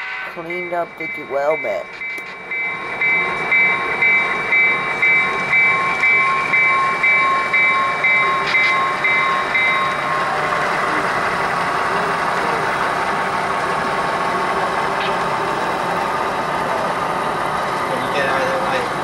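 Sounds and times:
locomotive bell ringing: 0:00.0 - 0:12.9
diesel engine running: 0:00.4 - 0:19.0.

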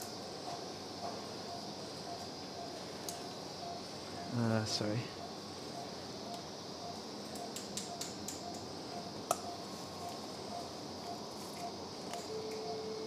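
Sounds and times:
operating room hum: 0:00.0 - 0:13.0
steady monitor tone: 0:08.4 - 0:13.0.

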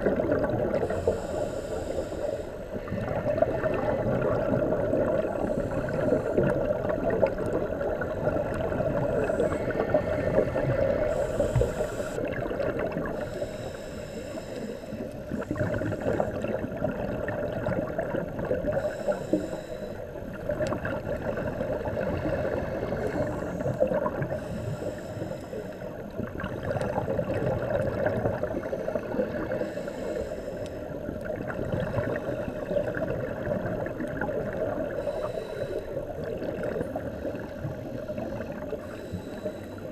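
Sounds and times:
exhaled bubbles gurgling: 0:00.0 - 0:39.9
diver breathing through regulator: 0:00.6 - 0:03.8, 0:05.1 - 0:12.4, 0:13.0 - 0:16.6, 0:18.7 - 0:20.2, 0:22.0 - 0:26.1, 0:28.6 - 0:31.1, 0:34.4 - 0:39.9.

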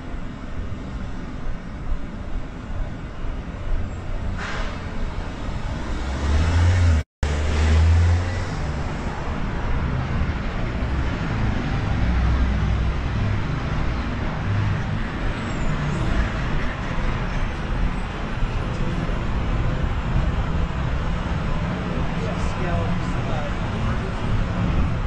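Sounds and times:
roar of passing cars: 0:05.5 - 0:15.1.

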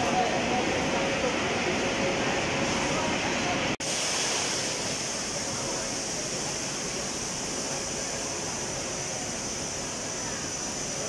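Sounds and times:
crowd hubbub: 0:00.0 - 0:03.8
constant hiss: 0:00.2 - 0:11.0.

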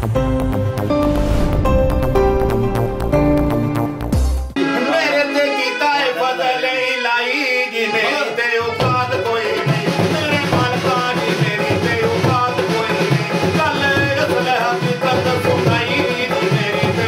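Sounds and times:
instrumental backing: 0:00.0 - 0:06.6
drum beat: 0:02.2 - 0:04.6, 0:08.8 - 0:17.0
man singing: 0:04.6 - 0:17.0.

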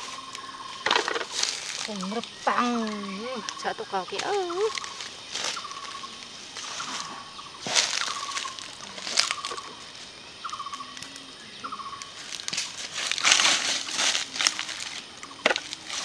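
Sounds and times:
footsteps on dry leaves: 0:00.0 - 0:10.9, 0:11.8 - 0:16.0
bird trilled chirp: 0:02.0 - 0:08.6.

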